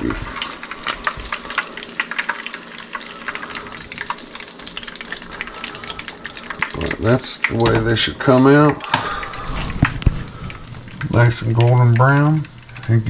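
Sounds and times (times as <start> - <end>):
hot oil sizzling and popping: 0.0 - 13.0.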